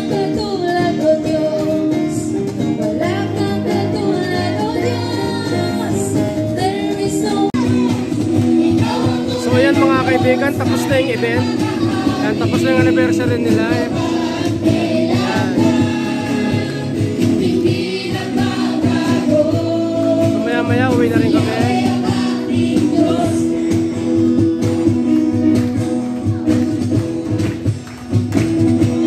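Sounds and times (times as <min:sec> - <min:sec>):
gospel song through loudspeakers: 0:00.0 - 0:07.6, 0:08.2 - 0:25.9.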